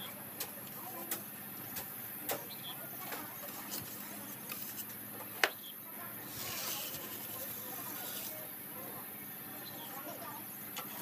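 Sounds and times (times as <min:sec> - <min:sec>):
float scraping wet mortar: 0:06.2 - 0:08.5.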